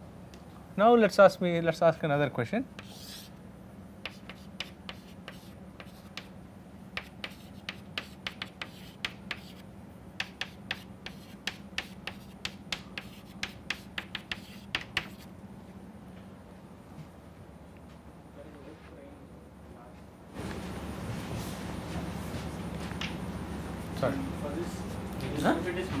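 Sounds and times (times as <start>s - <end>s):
chalk tapping on blackboard: 2.8s - 3.3s, 4.0s - 6.4s, 7.0s - 9.6s, 10.2s - 15.3s.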